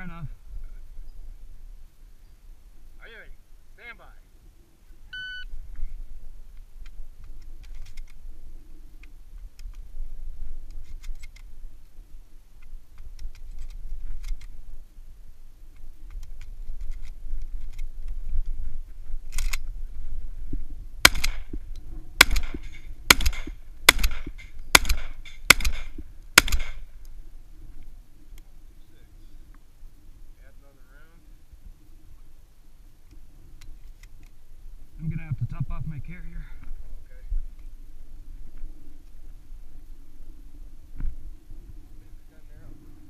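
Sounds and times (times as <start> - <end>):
shot timer beep: 5.1 - 5.5
shotgun shots: 21.0 - 21.5, 22.2 - 26.9.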